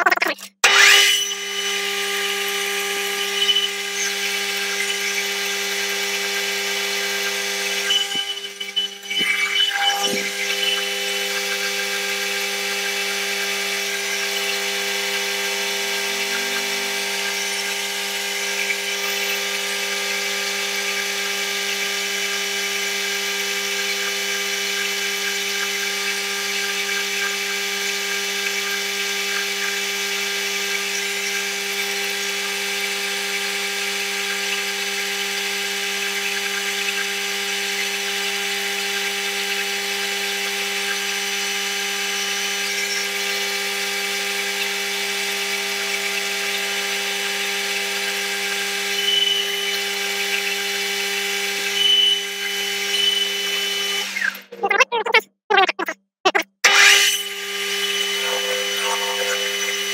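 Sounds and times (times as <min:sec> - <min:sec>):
metal lathe humming: 0:56.7 - 0:59.9.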